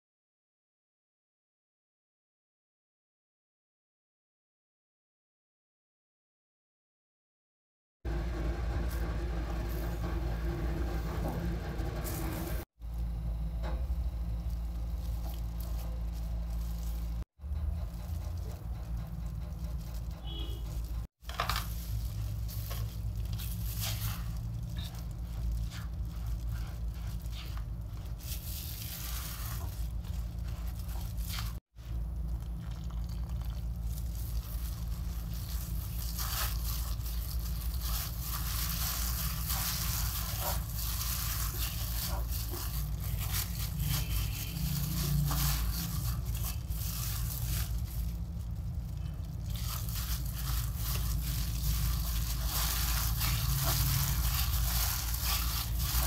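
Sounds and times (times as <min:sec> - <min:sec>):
flour scraping in glass bowl: 0:19.4 - 0:32.0, 0:32.7 - 0:56.0.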